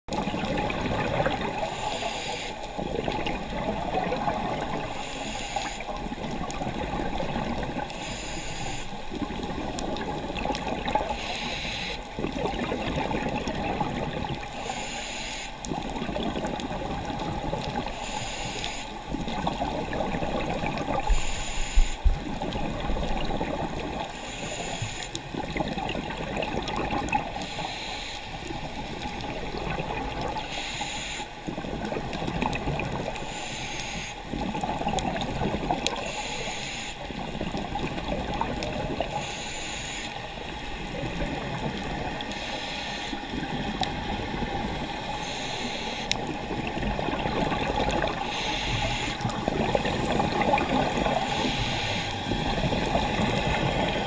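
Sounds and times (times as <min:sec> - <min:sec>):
exhaled air bubbling: 0:00.1 - 0:54.0
diver inhaling through regulator: 0:01.6 - 0:02.6, 0:04.9 - 0:05.9, 0:07.9 - 0:09.0, 0:11.1 - 0:12.0, 0:14.5 - 0:15.6, 0:17.9 - 0:19.0, 0:20.9 - 0:22.1, 0:24.1 - 0:25.2, 0:33.1 - 0:34.2, 0:39.1 - 0:40.2, 0:42.2 - 0:43.3, 0:45.1 - 0:46.2, 0:48.0 - 0:53.0.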